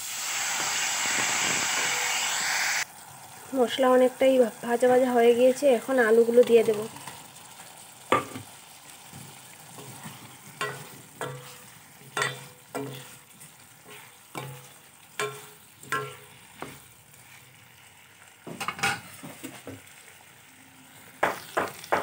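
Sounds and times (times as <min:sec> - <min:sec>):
low frying sizzle: 0:00.0 - 0:22.0
spatula knocking on steel pan: 0:10.6 - 0:11.5, 0:14.4 - 0:16.8, 0:21.2 - 0:22.0.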